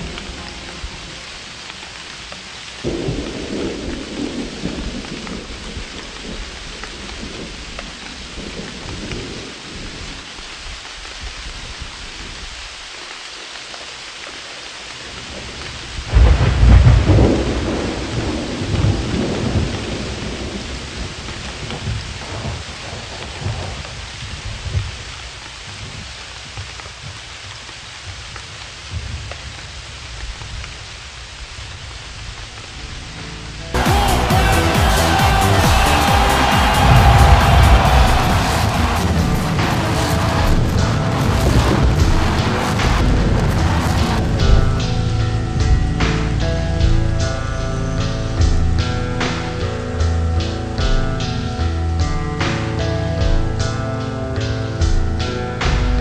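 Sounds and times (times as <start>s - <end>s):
thunder rumbling: 0.0s - 10.3s, 15.1s - 25.0s, 33.7s - 50.0s
steady rain: 0.0s - 56.0s.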